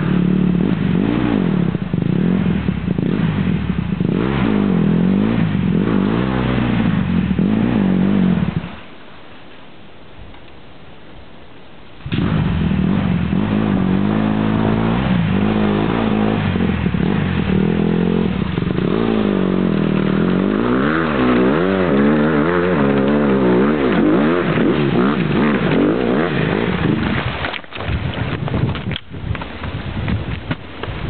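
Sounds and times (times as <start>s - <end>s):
dirt bike engine revving: 0.0s - 8.8s, 12.0s - 27.6s.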